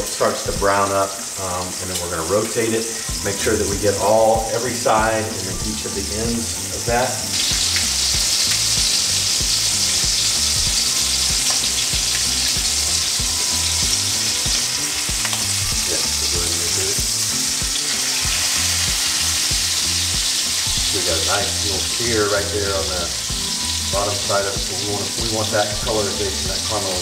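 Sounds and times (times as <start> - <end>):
meat sizzling in a skillet: 0.0 - 27.0.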